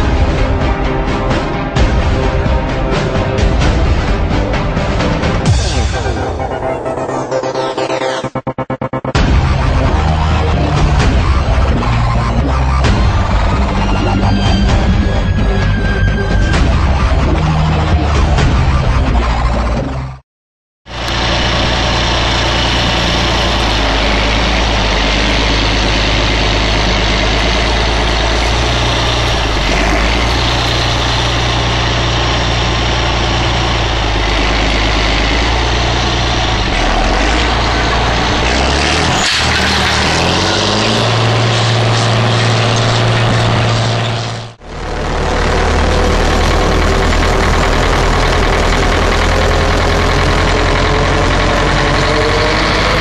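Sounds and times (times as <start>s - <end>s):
tractor diesel engine under load: 0.0s - 20.2s, 20.8s - 53.0s
tractor engine from inside cab: 20.9s - 53.0s.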